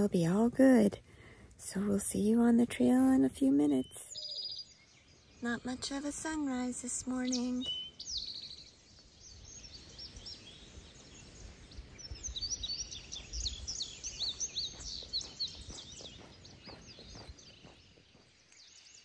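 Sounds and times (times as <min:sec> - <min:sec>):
songbirds chirping and whistling: 0:00.0 - 0:19.0.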